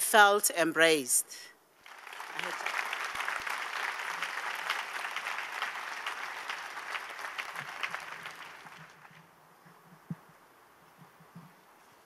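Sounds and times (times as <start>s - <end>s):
audience applauding: 1.8s - 9.2s.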